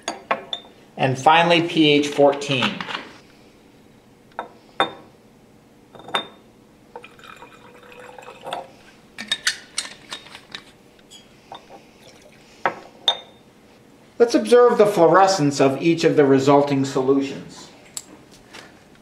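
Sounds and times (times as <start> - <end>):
liquid pouring into glass flask: 7.0 - 8.9, 12.0 - 12.4
ringing glass clinks: 13.1 - 13.4.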